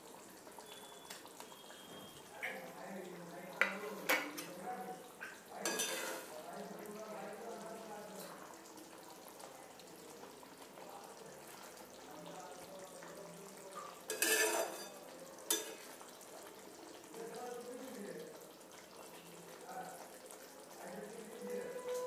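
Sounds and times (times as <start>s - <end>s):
curry simmering in a pan: 0.0s - 22.0s
spatula stirring: 5.6s - 6.4s, 14.1s - 15.9s
spatula rasping against pan: 14.1s - 15.8s.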